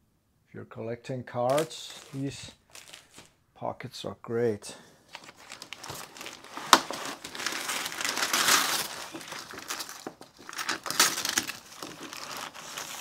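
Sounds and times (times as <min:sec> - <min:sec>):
packaging rustling and crinkling: 0:01.5 - 0:03.4, 0:05.0 - 0:13.0.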